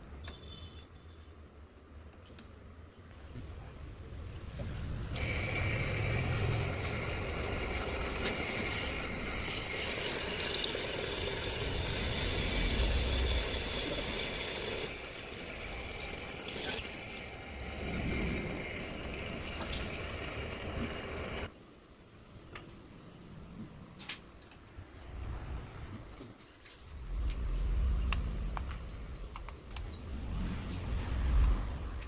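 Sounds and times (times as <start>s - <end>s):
cutter scraping steel: 5.2s - 17.4s
drill motor whine: 5.2s - 17.5s.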